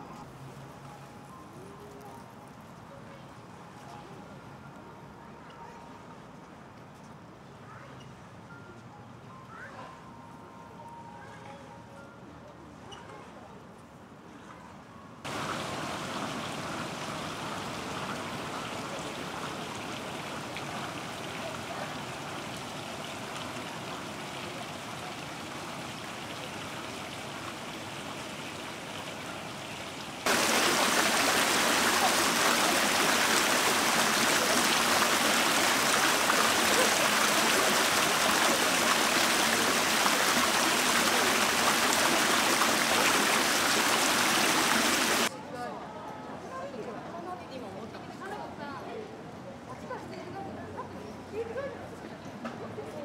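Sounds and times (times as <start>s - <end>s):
outdoor background noise: 0.0s - 53.0s
water rushing over stone slabs: 15.3s - 29.2s, 30.2s - 45.3s.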